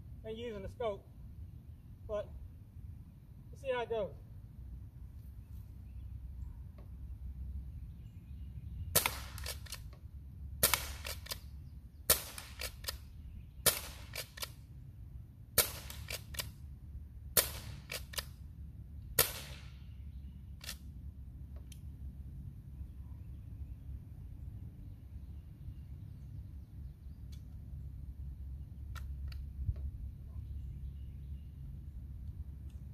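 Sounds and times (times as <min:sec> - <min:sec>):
air rifle shots: 0:08.9 - 0:09.9, 0:10.6 - 0:11.5, 0:12.1 - 0:14.6, 0:15.6 - 0:16.6, 0:17.3 - 0:18.4, 0:19.2 - 0:20.0
quick clicks: 0:09.0 - 0:10.0, 0:10.6 - 0:11.5, 0:12.3 - 0:13.1, 0:13.7 - 0:14.6, 0:15.7 - 0:16.6, 0:17.7 - 0:18.4, 0:20.6 - 0:20.9.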